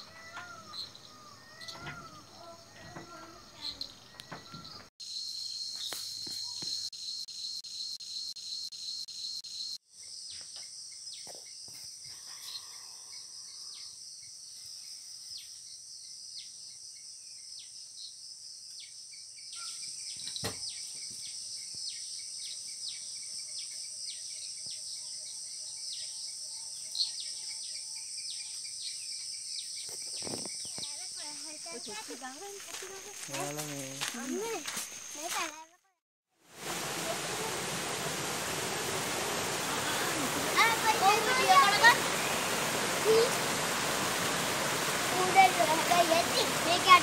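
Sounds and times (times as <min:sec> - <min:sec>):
insects chirring: 0:00.0 - 0:35.8.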